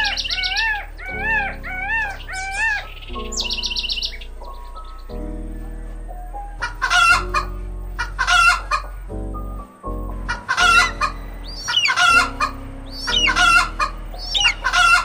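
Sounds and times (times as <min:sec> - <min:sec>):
background music sustained notes: 0:00.0 - 0:15.0
small birds chirping: 0:00.0 - 0:15.0
chickens clucking: 0:06.6 - 0:09.1, 0:10.3 - 0:15.0.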